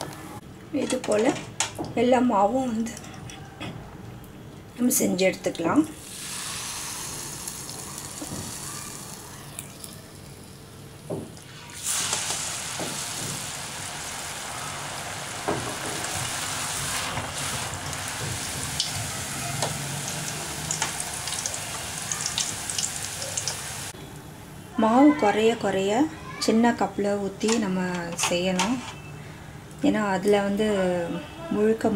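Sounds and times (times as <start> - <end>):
batter sizzling in hot oil: 6.0 - 23.9
oil crackling: 6.0 - 23.9.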